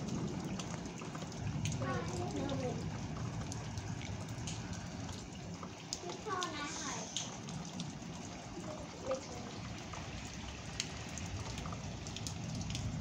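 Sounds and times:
steady rain falling: 0.0s - 13.0s.

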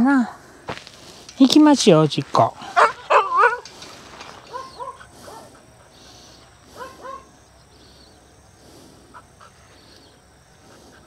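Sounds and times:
dog whining in high yelps: 2.7s - 3.7s, 4.4s - 5.5s.

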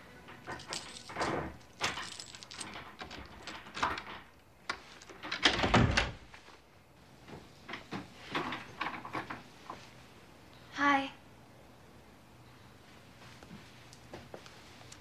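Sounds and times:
door lock rattles and clicks: 0.3s - 6.2s
door thud: 5.4s - 6.2s.

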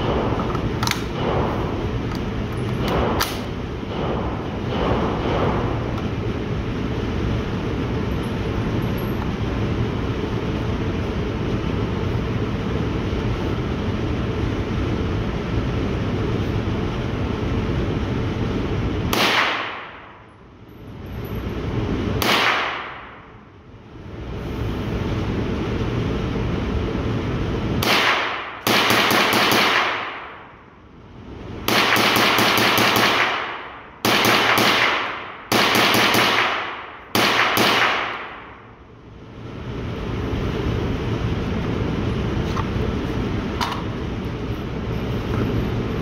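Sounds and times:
steady background hum: 0.0s - 46.0s
rifle gunshots: 19.1s - 20.0s, 22.2s - 23.2s, 27.8s - 30.5s, 31.7s - 38.6s.

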